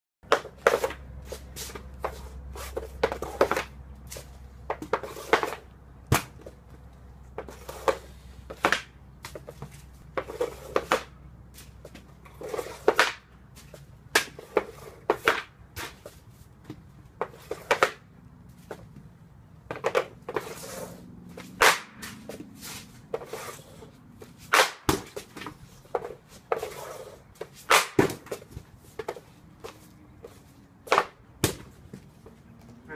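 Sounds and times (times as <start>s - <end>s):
hockey stick striking puck: 0.3s - 6.6s, 7.4s - 9.5s, 10.1s - 11.2s, 11.9s - 18.1s, 19.7s - 20.8s, 21.4s - 23.6s, 24.2s - 29.2s
puck hitting goal netting: 4.7s - 6.6s, 7.4s - 9.5s, 10.2s - 11.2s, 11.9s - 18.1s, 19.7s - 20.6s, 21.4s - 23.6s, 24.3s - 29.2s, 30.8s - 31.8s.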